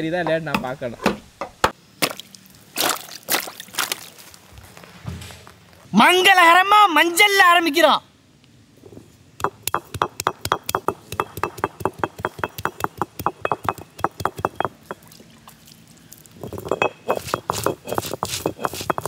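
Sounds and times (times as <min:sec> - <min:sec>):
jumble of sound: 0:09.4 - 0:19.0.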